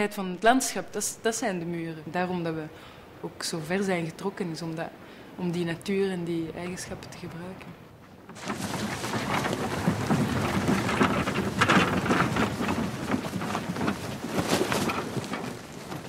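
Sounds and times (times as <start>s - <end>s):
heavy rain-like noise: 8.3s - 16.0s.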